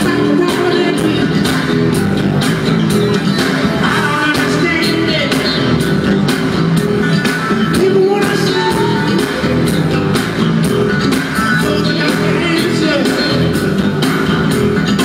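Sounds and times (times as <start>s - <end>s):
man singing into a microphone: 0.0s - 1.5s, 3.8s - 5.7s, 7.7s - 9.2s, 11.6s - 13.6s
drums keeping a steady beat: 0.0s - 15.0s
keyboards: 0.0s - 15.0s
live band playing: 0.0s - 15.0s.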